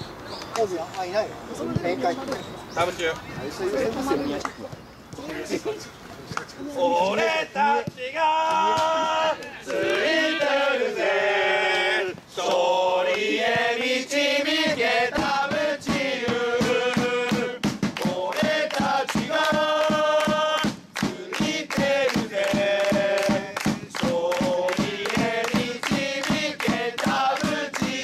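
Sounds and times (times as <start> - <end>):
male crowd chanting: 6.7 - 28.0
steady drum beat: 14.6 - 28.0.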